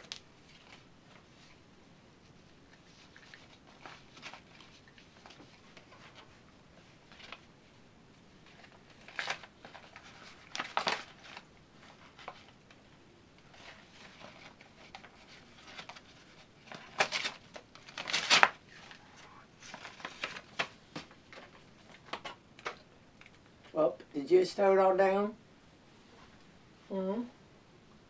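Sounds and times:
paper tearing and rustling: 0:08.5 - 0:12.6, 0:13.5 - 0:19.0, 0:19.6 - 0:20.8.

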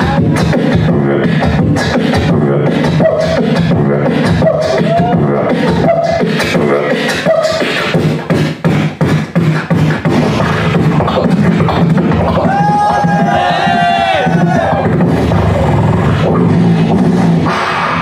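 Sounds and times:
person beatboxing into microphone: 0:00.0 - 0:18.0.

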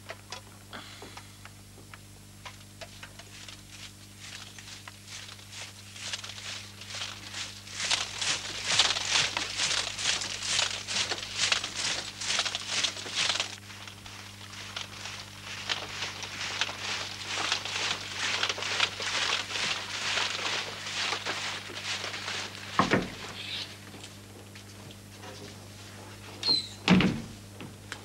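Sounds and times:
steady low hum: 0:00.0 - 0:28.0
soldiers marching: 0:03.4 - 0:23.4.

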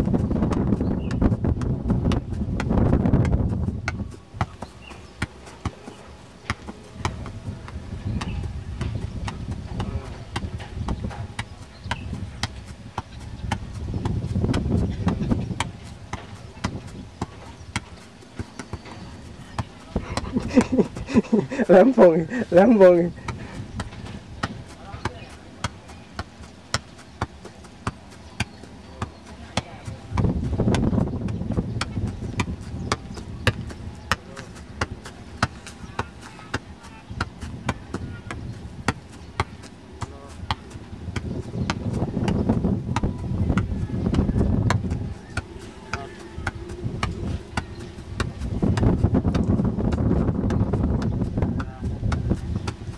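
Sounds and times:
ball bouncing and being struck: 0:00.1 - 0:19.9, 0:23.3 - 0:52.9
voices murmuring: 0:04.0 - 0:13.5, 0:14.8 - 0:52.9
low background rumble: 0:29.4 - 0:52.9.

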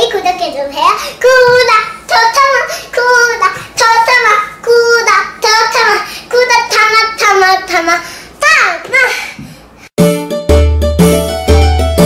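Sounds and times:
girl singing a bouncy tune: 0:00.0 - 0:09.5.

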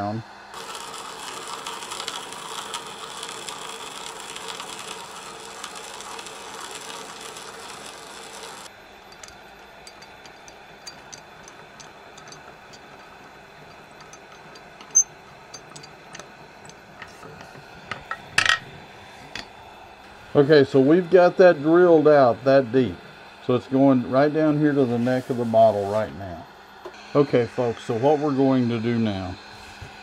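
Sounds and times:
wood lathe turning: 0:00.5 - 0:26.3, 0:26.9 - 0:30.0
spade bit boring into wood: 0:00.6 - 0:18.5.

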